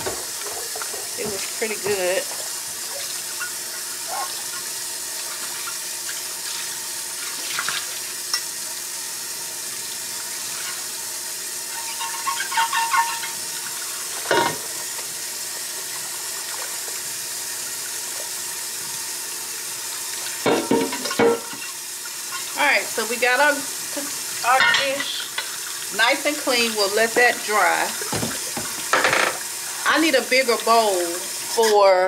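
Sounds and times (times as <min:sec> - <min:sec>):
faucet running into sink: 0:00.0 - 0:32.0
glass dish clinking: 0:20.5 - 0:21.6.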